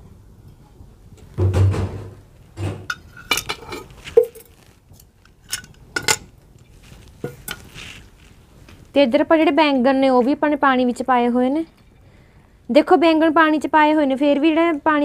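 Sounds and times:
metal utensils clinking on pan: 2.9s - 4.5s, 5.4s - 6.3s.

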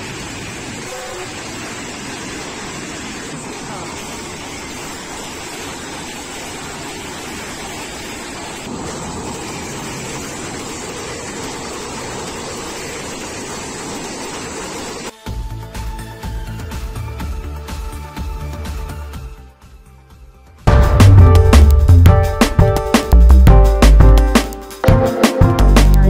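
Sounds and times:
passenger train passing: 0.0s - 15.1s.

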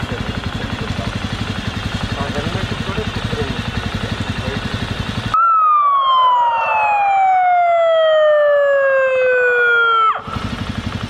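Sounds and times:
electronic siren wailing: 5.3s - 10.5s.

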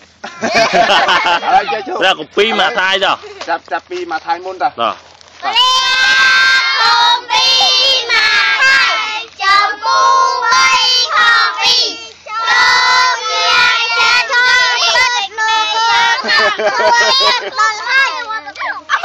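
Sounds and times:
children singing in unison: 5.5s - 18.2s.

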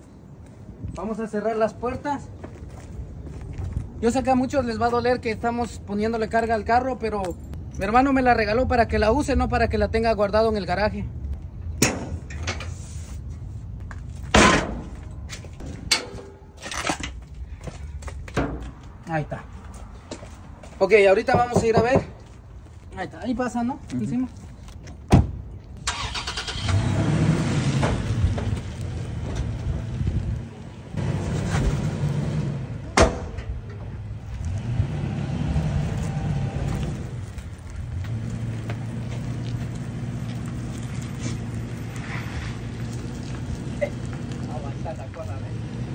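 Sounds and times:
metal door banging shut: 14.3s - 15.0s, 32.9s - 33.7s.

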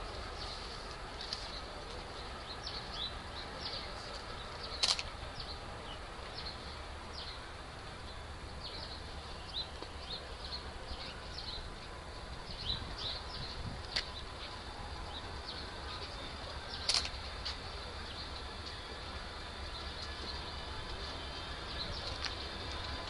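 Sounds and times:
small birds chirping: 8.1s - 18.9s.

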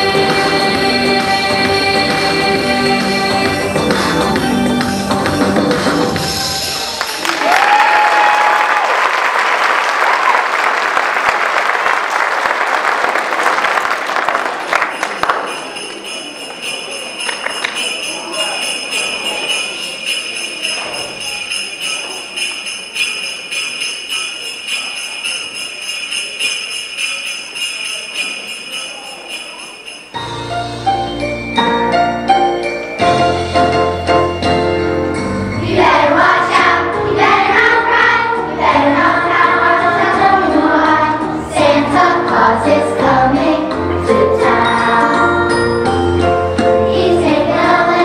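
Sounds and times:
audience applause: 6.8s - 15.7s
jingle bells shaking: 14.5s - 48.0s.

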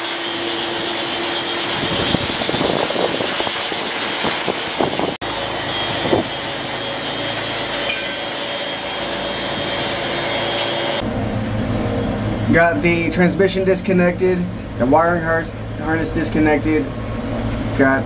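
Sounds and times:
electric sander with dust extractor: 0.0s - 11.0s.

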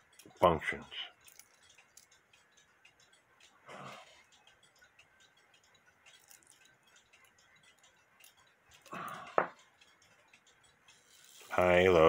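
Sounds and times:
clock mechanism clicks: 0.0s - 12.0s.

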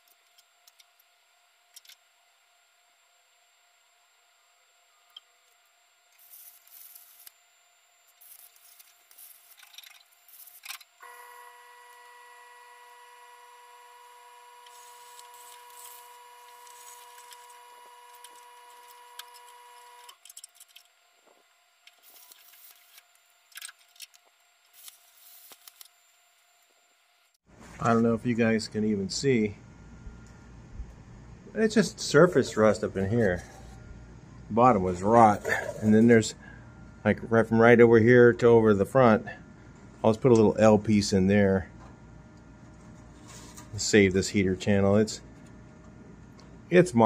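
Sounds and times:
steady whine with overtones: 0.0s - 47.0s
mig welder crackling: 5.4s - 7.4s, 8.0s - 27.4s.

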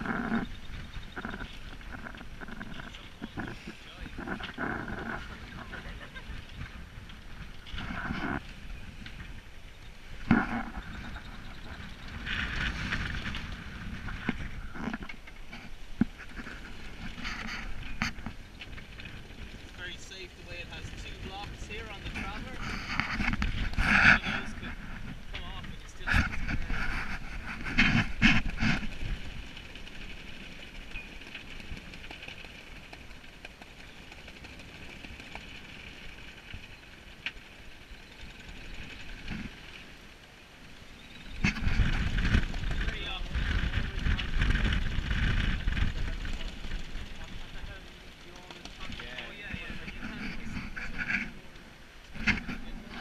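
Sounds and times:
wind buffeting microphone: 0.0s - 34.1s, 40.9s - 48.2s.

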